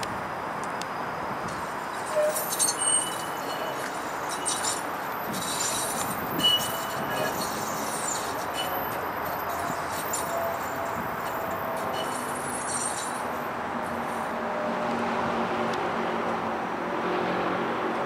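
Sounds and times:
streetcar wheels rolling on rails: 0:00.0 - 0:18.0.

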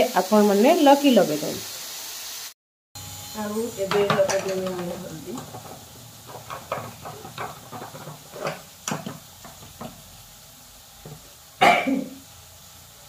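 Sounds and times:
kitchen things knocking and clinking: 0:03.8 - 0:10.1.

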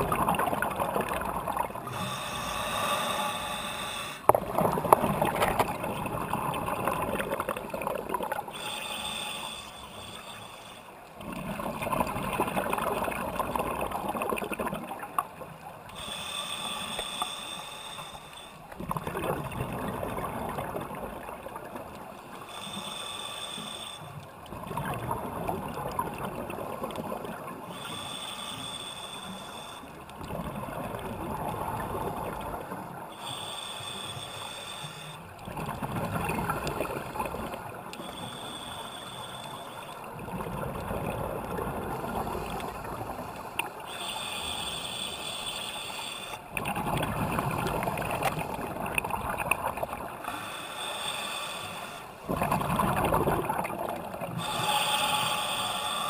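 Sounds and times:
gurgling exhaled bubbles: 0:00.0 - 0:02.1, 0:04.2 - 0:08.5, 0:11.2 - 0:15.4, 0:18.8 - 0:22.0, 0:24.5 - 0:27.7, 0:30.1 - 0:33.0, 0:35.4 - 0:37.8, 0:40.0 - 0:43.8, 0:46.4 - 0:50.3, 0:52.2 - 0:55.3
diver inhaling through regulator: 0:00.0 - 0:05.8, 0:08.4 - 0:11.0, 0:15.9 - 0:18.6, 0:22.4 - 0:24.2, 0:27.7 - 0:30.0, 0:33.1 - 0:35.3, 0:36.2 - 0:40.2, 0:41.0 - 0:46.5, 0:47.1 - 0:56.0.

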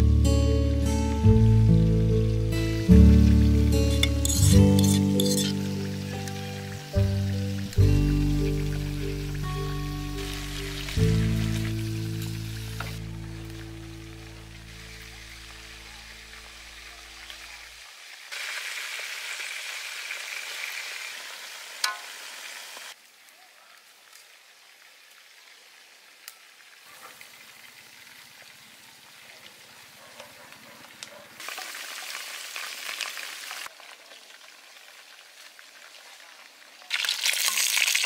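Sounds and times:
chicken sizzling in oil: 0:02.0 - 0:23.0, 0:31.4 - 0:38.0.

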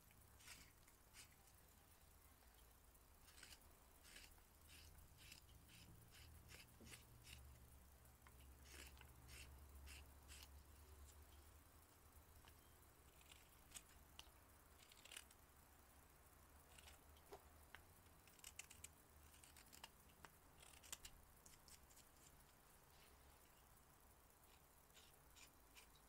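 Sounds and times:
low steady hum: 0:00.0 - 0:26.0
carving knife scraping wood: 0:00.4 - 0:01.4, 0:03.2 - 0:07.5, 0:08.4 - 0:10.5, 0:14.8 - 0:15.3, 0:16.7 - 0:17.0, 0:18.3 - 0:19.9, 0:20.6 - 0:22.4, 0:24.5 - 0:26.0.

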